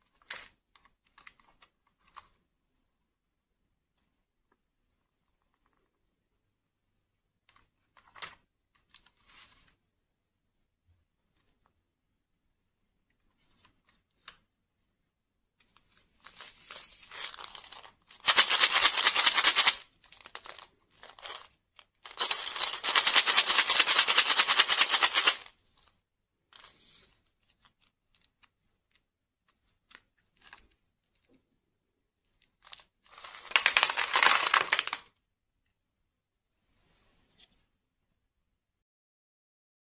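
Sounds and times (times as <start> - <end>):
paper tubes crackling and rattling: 0.0 - 2.4, 15.6 - 31.5, 32.2 - 35.2
candies spilling onto plastic tray: 32.6 - 35.1.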